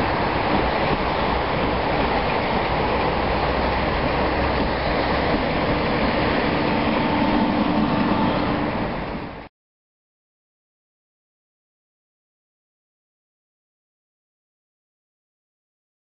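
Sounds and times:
faint electric locomotive hum: 0.0 - 9.5
train wheels rolling on rail: 0.0 - 9.5.

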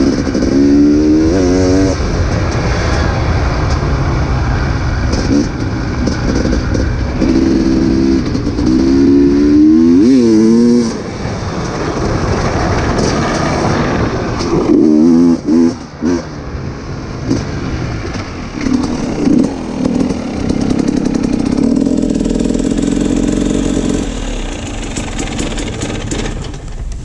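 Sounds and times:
dirt bike engine: 0.0 - 27.0.

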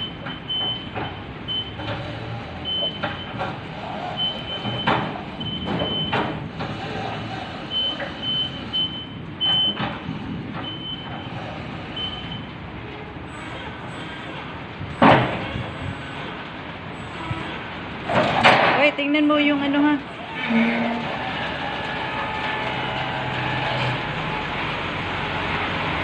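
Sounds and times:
truck clunks and knocks: 0.0 - 11.3, 14.3 - 16.4, 18.0 - 19.0.

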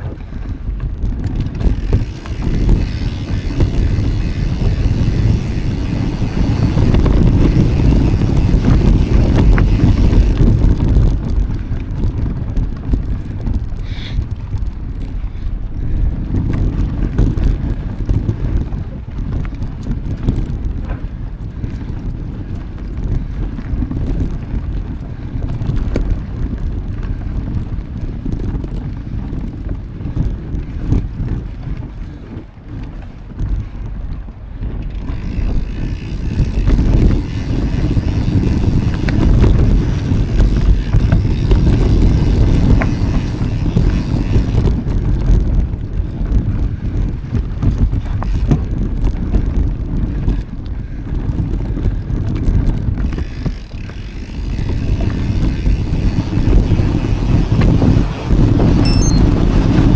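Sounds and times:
bicycle tyre rumble: 0.0 - 59.9
wind rushing over microphone: 0.0 - 59.9
small rattles: 1.0 - 11.8
high squeak: 58.8 - 59.2.

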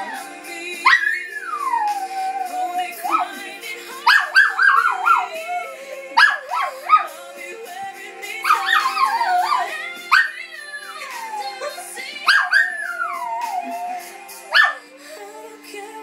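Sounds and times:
recorded music: 0.0 - 16.0
small dog howling: 4.1 - 5.6, 8.5 - 10.4, 12.3 - 14.8.

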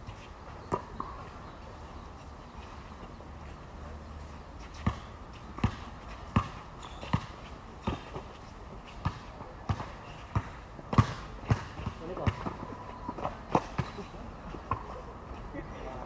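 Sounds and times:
basketball bouncing on court: 4.8 - 8.2, 9.0 - 14.0.

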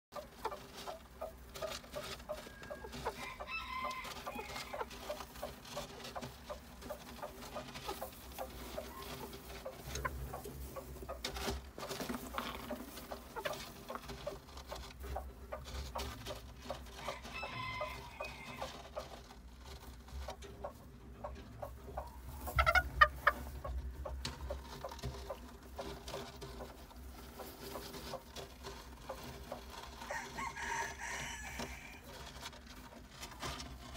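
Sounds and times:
hen clucking: 0.1 - 33.7.

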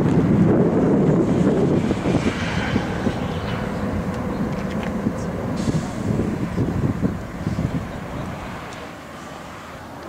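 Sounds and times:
jet engines rumbling: 0.0 - 10.0
wind buffeting microphone: 0.0 - 10.0.

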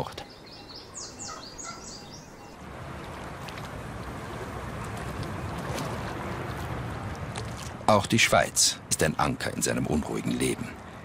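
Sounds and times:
river rushing: 0.9 - 7.9.

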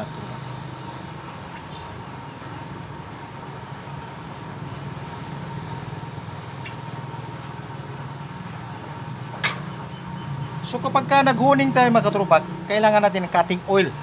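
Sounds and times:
faint steady tone: 0.0 - 2.9.

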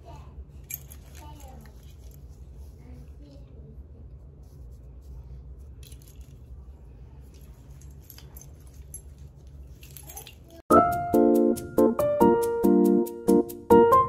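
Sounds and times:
low steady hum: 0.0 - 10.6
keychains clinking and rustling: 0.6 - 2.3, 5.8 - 6.6, 7.2 - 10.7.

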